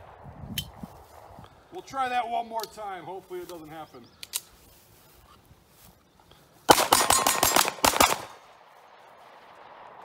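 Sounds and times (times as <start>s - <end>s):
pistol shots fired rapidly: 6.7s - 8.4s.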